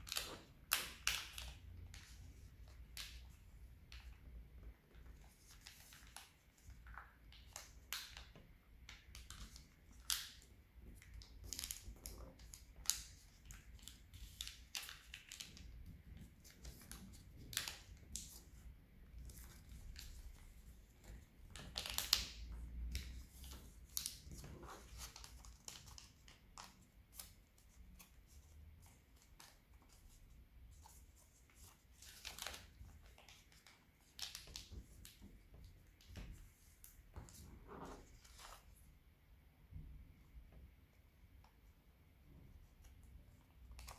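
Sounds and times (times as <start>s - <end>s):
paper rustling and crackling: 4.9s - 8.4s, 19.2s - 38.8s.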